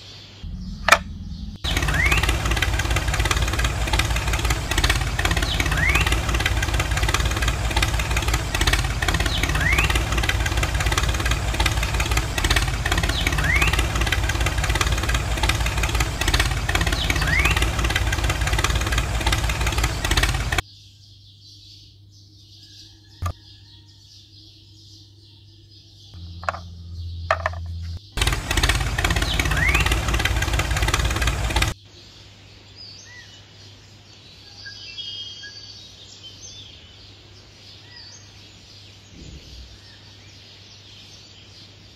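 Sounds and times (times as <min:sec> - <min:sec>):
short rising chirp: 0:00.4 - 0:02.4
brief low hum: 0:00.4 - 0:10.9, 0:26.2 - 0:31.8
engine running: 0:00.4 - 0:20.6, 0:26.2 - 0:31.8.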